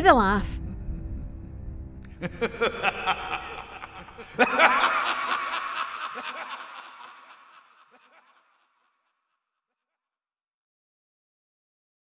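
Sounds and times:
villainous laughter: 2.1 - 8.6.

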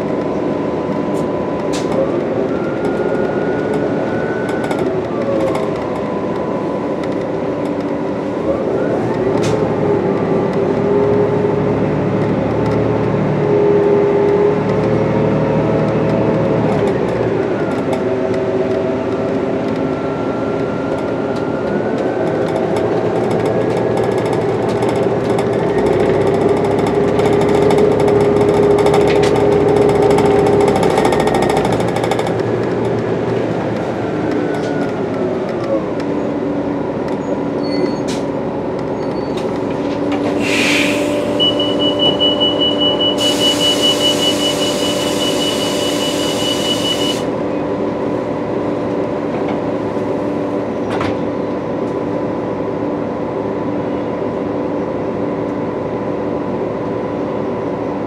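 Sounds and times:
bus engine running: 0.0 - 58.0
short air hiss: 40.4 - 41.4
transmission whine: 40.8 - 52.6.

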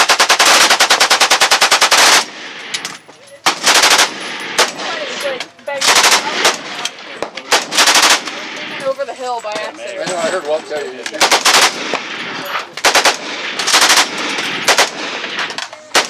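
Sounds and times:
machine gun firing bursts: 0.0 - 2.4, 3.4 - 5.2, 5.8 - 6.8, 7.4 - 8.5, 11.2 - 12.2, 12.8 - 16.0.

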